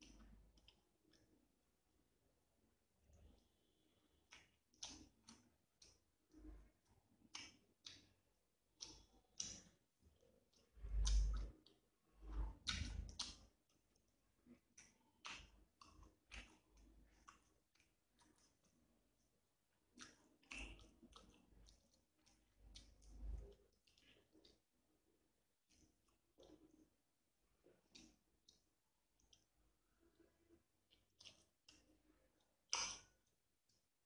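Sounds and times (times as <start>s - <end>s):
wet chewing mouth sounds: 10.5s - 13.5s, 14.5s - 18.8s, 19.9s - 24.7s, 25.6s - 26.9s, 29.2s - 33.3s.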